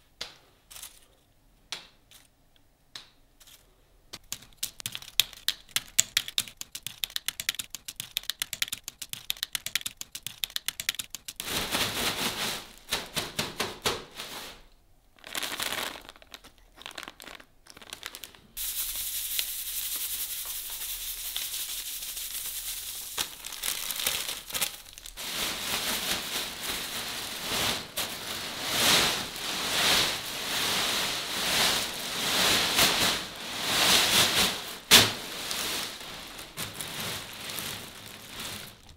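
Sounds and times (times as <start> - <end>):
bag of chips shaken: 4.3 - 13.5, 15.2 - 38.9
plastic bag crinkling: 4.4 - 13.2, 15.2 - 18.6, 22.2 - 38.9
chips dropping into bag: 15.2 - 18.4
seasoning powder pouring: 17.9 - 24.2.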